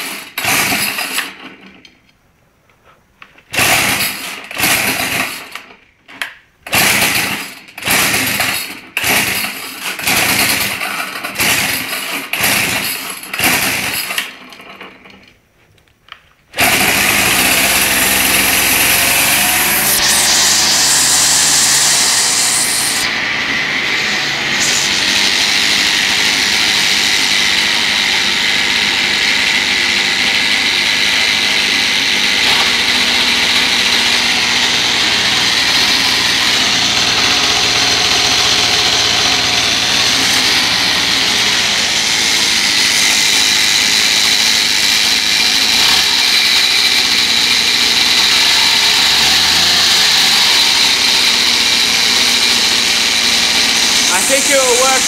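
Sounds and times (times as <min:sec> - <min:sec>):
small engine high-pitched buzz: 0:16.6 - 0:55.0.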